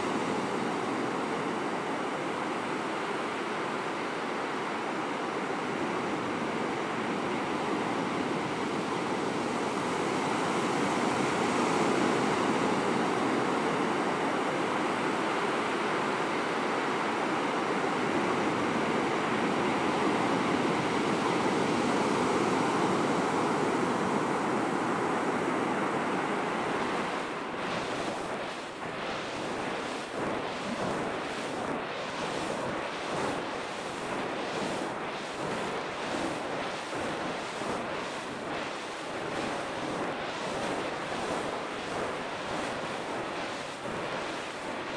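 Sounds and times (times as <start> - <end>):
ocean surf breaking: 18.9 - 44.9
wind buffeting microphone: 25.9 - 44.9.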